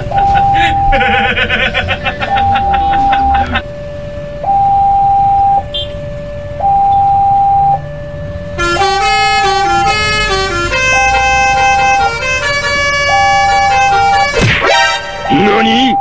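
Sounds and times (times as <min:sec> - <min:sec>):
level-crossing two-tone alarm: 0:00.0 - 0:16.0
loud horn-like tune: 0:08.6 - 0:15.4.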